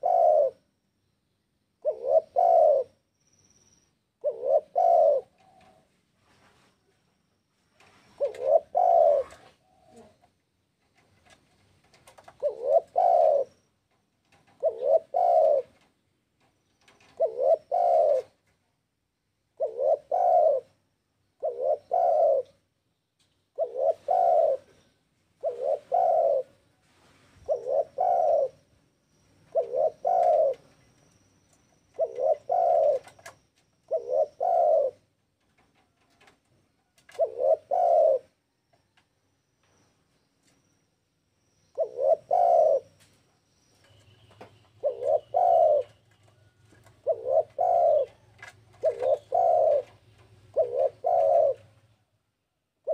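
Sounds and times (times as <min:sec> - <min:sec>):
dove cooing: 0:00.0 - 0:00.8, 0:01.8 - 0:03.0, 0:04.2 - 0:06.0, 0:07.9 - 0:10.4, 0:11.2 - 0:13.7, 0:14.3 - 0:15.9, 0:16.8 - 0:18.5, 0:19.5 - 0:20.8, 0:21.4 - 0:22.7, 0:23.5 - 0:28.7, 0:29.5 - 0:30.9, 0:31.8 - 0:35.2, 0:35.8 - 0:38.5, 0:41.7 - 0:43.1, 0:43.8 - 0:51.9.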